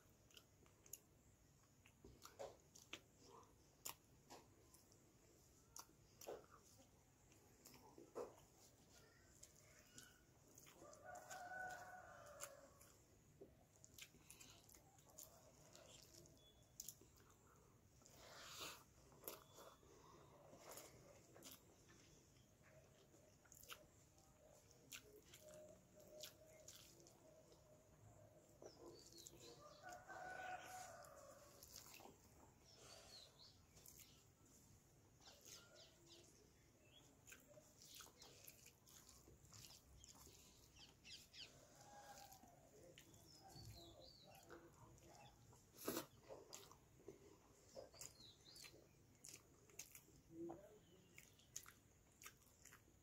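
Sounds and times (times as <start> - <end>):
chewing: 0.0 - 53.0
rooster crowing: 29.8 - 31.6.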